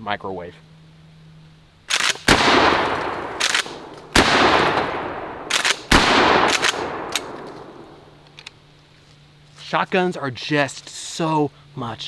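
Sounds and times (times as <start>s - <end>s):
shotgun slide clacks: 1.9s - 2.3s, 5.5s - 7.6s
shotgun blasts with echo: 1.9s - 8.0s.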